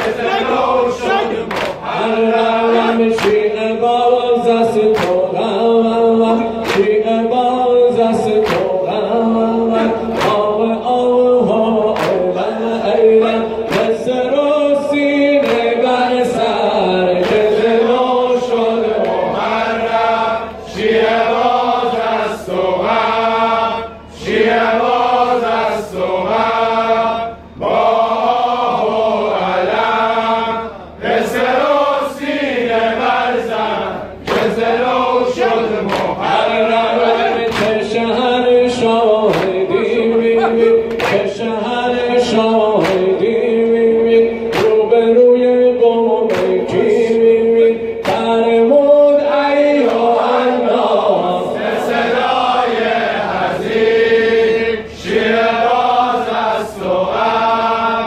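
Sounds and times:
men's chorus chanting: 0:00.0 - 0:58.0
chest-beating slaps: 0:01.5 - 0:01.8, 0:05.0 - 0:05.2, 0:06.6 - 0:06.9, 0:08.4 - 0:08.8, 0:12.0 - 0:12.2, 0:35.9 - 0:36.2, 0:39.3 - 0:39.6, 0:40.9 - 0:41.3, 0:44.5 - 0:44.8, 0:46.3 - 0:46.6, 0:48.0 - 0:48.3.

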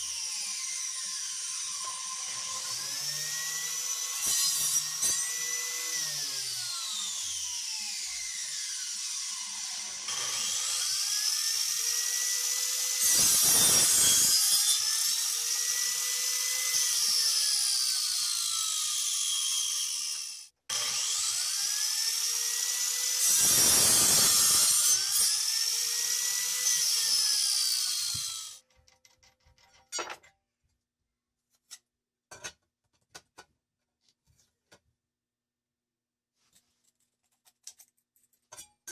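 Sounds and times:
angle grinder cutting wood: 0:00.0 - 0:28.6
metallic clicks of nut and washers: 0:36.8 - 0:38.9.

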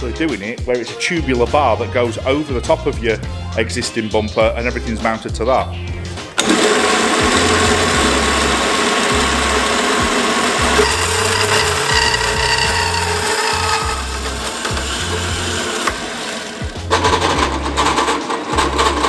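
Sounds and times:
high whine: 0:05.9 - 0:18.0
bandsaw cutting metal: 0:06.4 - 0:19.0.

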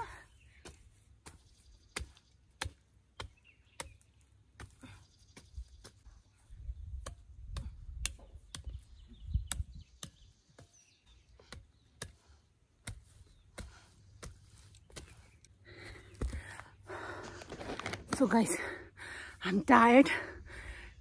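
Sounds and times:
digging fork chopping soil: 0:00.6 - 0:16.4.

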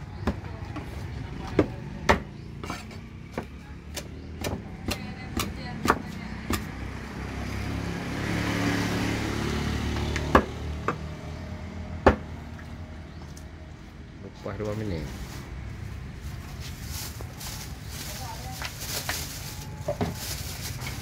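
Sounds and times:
motor vehicle engine: 0:00.0 - 0:21.0
cleaver chopping on wooden block: 0:01.5 - 0:06.7, 0:10.1 - 0:11.1, 0:12.0 - 0:12.4.

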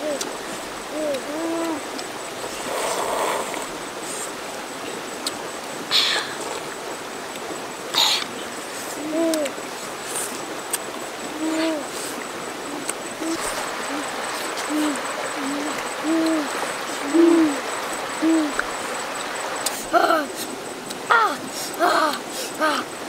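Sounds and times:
bird hooting: 0:00.0 - 0:01.9, 0:11.3 - 0:11.9, 0:12.6 - 0:19.0
stream water rushing: 0:00.0 - 0:23.0.

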